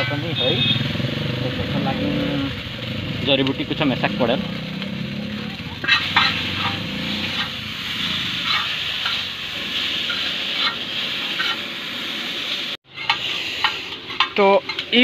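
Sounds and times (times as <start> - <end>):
noodles sizzling on a griddle: 0.0 - 15.0
metal spatula scraping a pan: 5.8 - 11.9, 12.6 - 15.0.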